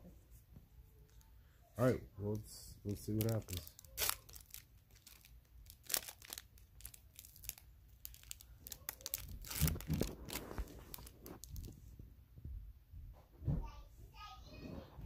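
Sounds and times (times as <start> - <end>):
foil wrapper crinkling and tearing: 2.9 - 11.8
cards being handled: 3.0 - 11.8.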